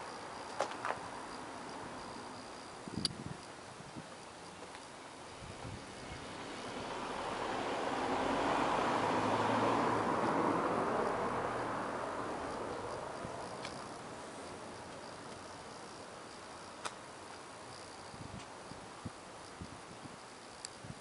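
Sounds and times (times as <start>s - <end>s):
vehicle driving past: 6.0s - 14.9s.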